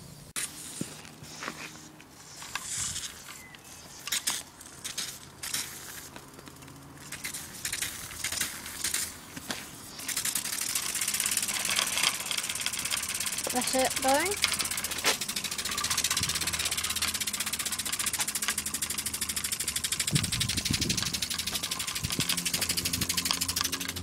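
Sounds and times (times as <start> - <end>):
model steam engine running: 10.0 - 24.0.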